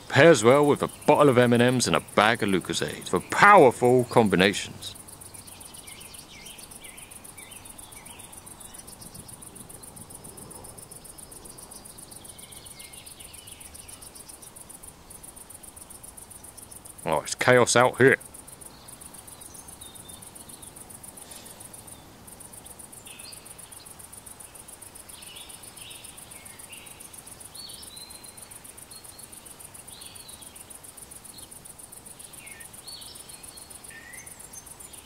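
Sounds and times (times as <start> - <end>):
bird chirps: 0.0 - 23.9, 25.1 - 30.6, 32.2 - 35.0
insects buzzing: 0.0 - 35.0.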